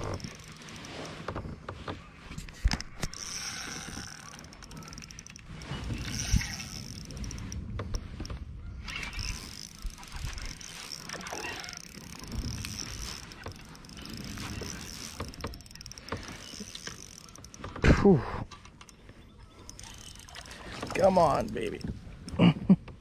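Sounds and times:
fishing reel being cranked: 0:00.0 - 0:01.7, 0:02.4 - 0:17.8, 0:18.4 - 0:22.4
rod and kayak handling noise: 0:00.0 - 0:23.0.

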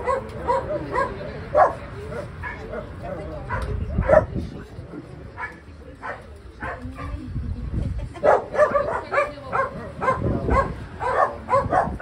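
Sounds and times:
puppies high-pitched calls: 0:08.2 - 0:12.0.

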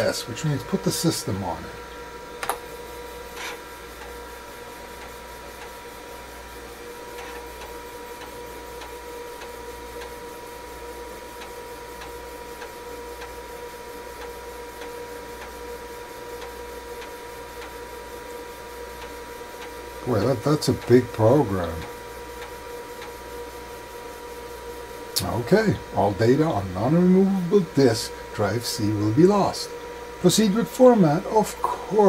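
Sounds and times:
computer whine and fan hum: 0:00.0 - 0:32.0
floppy drive ticking: 0:07.0 - 0:23.5.

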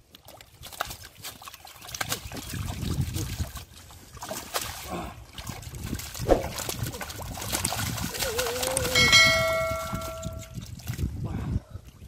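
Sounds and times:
hands splashing in muddy water: 0:00.0 - 0:11.1
sharp slap: 0:06.2 - 0:06.7
steady pitched tone: 0:09.0 - 0:10.5.

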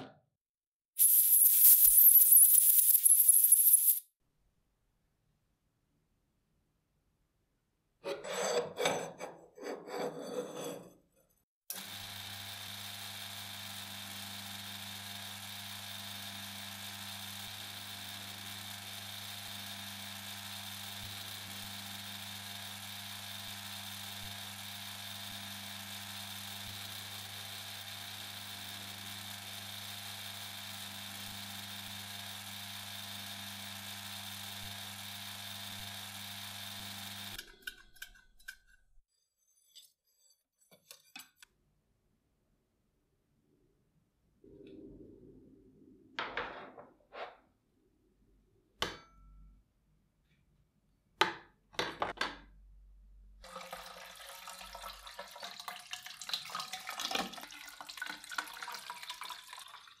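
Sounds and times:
metal lathe humming: 0:11.7 - 0:37.4.

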